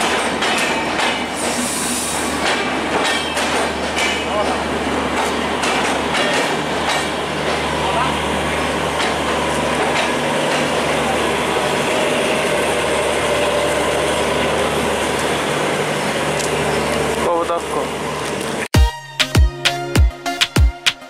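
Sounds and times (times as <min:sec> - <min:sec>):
people talking: 0:07.8 - 0:08.8, 0:17.2 - 0:17.9.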